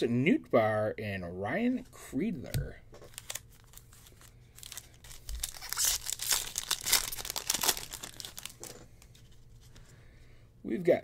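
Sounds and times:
foil wrapper tearing and crinkling: 3.1 - 8.8.

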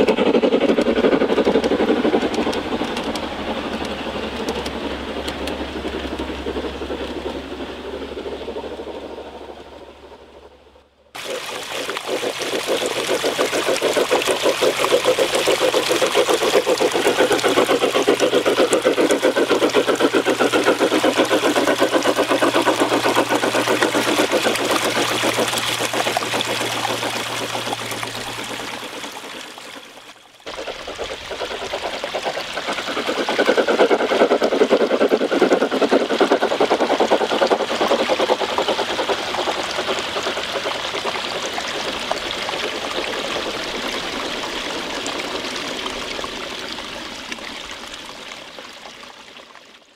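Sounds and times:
model train wheels clattering: 0.0 - 9.6, 11.2 - 42.3
low hum: 0.0 - 47.4
stream trickling: 0.0 - 49.9.

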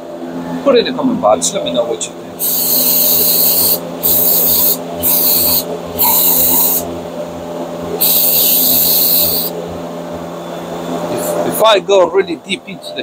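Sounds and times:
heater low hum: 0.0 - 13.0
hissing bursts: 2.4 - 6.9, 8.0 - 9.5.

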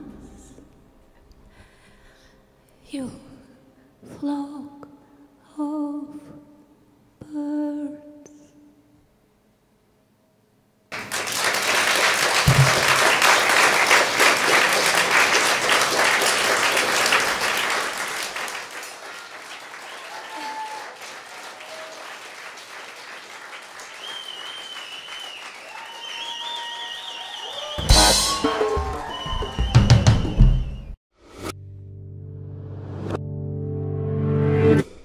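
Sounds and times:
audience applause: 10.9 - 30.8.

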